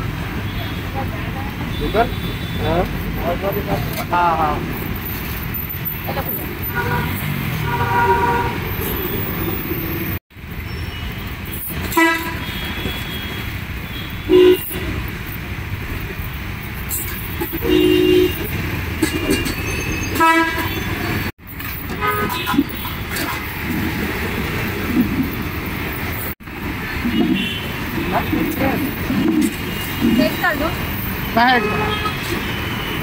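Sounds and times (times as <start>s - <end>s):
roadside traffic noise: 0.0s - 33.0s
vehicle horns honking: 1.7s - 3.7s, 6.2s - 9.4s, 10.8s - 15.0s, 17.5s - 21.3s, 21.9s - 23.5s, 27.0s - 33.0s.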